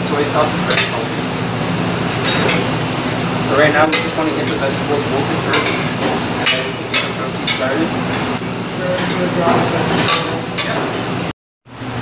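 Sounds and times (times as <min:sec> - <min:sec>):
vegetables sizzling in a pot: 0:00.0 - 0:11.3
utensil scraping and clinking pot: 0:02.0 - 0:02.8, 0:03.5 - 0:11.0.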